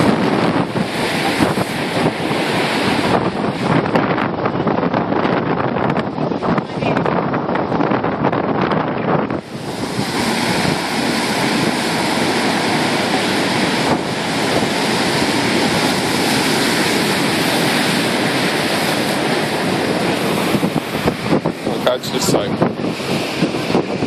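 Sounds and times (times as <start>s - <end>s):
heavy surf breaking against pilings: 0.0s - 24.0s.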